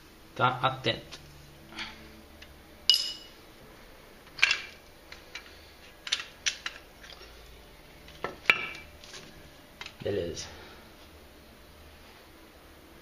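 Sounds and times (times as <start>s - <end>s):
metal tools clinking: 2.9s - 3.3s.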